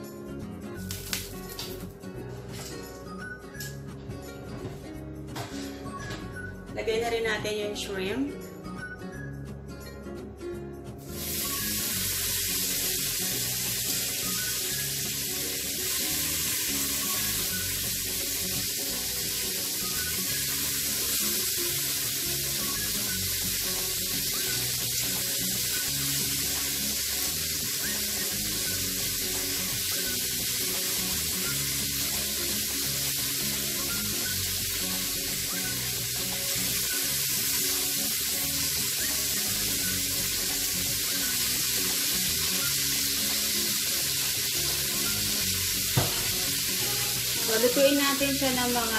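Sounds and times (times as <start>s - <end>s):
background music: 0.0s - 48.9s
shrimp sizzling in butter: 0.8s - 1.8s, 11.0s - 48.9s.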